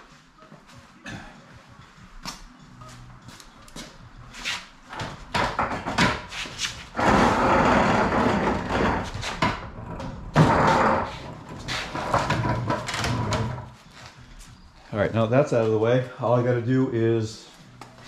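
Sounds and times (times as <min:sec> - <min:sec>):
wood knocking and bumping: 0:05.0 - 0:06.3
wooden stand scraping on concrete: 0:05.6 - 0:13.8.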